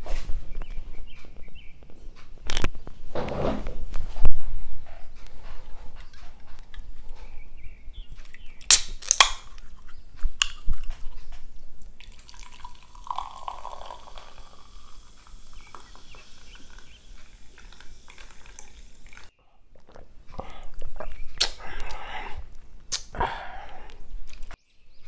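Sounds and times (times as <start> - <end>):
drink can opening cracks: 8.6 - 11.0
drink pouring into glass: 12.0 - 19.3.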